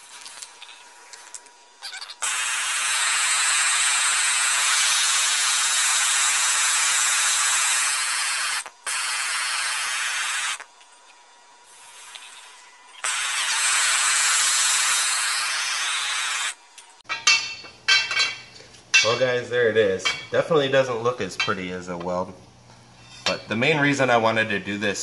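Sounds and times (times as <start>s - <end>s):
gas torch flame hissing: 2.2s - 10.7s, 11.6s - 16.6s.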